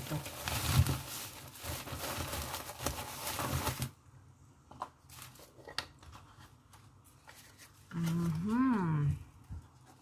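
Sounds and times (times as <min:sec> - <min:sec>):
plastic packaging crinkling: 0:00.0 - 0:04.0.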